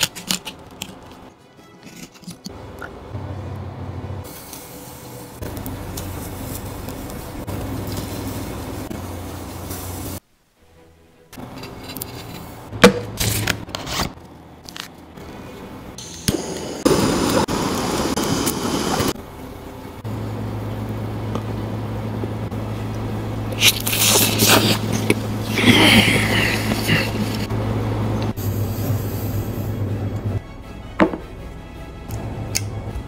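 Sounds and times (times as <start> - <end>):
steady low hum: 14.3 - 30.6
slurping: 23.5 - 27.5.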